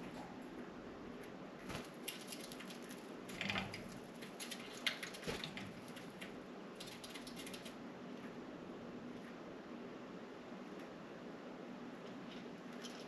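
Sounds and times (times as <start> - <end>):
birds clicking on window blinds: 1.7 - 7.8, 12.1 - 13.0.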